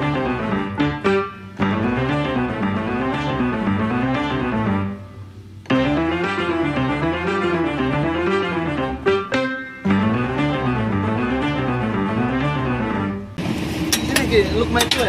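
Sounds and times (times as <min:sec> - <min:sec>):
plucked string music: 0:05.7 - 0:13.1.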